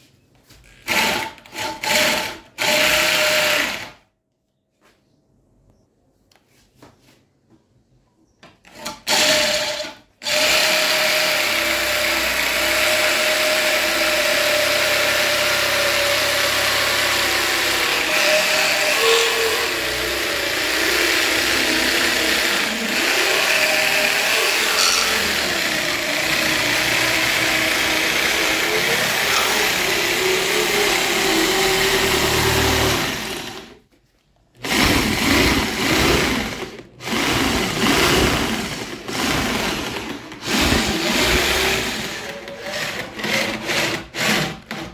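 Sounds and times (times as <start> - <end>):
electric drill motor whine: 8.8 - 33.8, 34.6 - 44.9
rasp of wood being cut: 15.2 - 33.5.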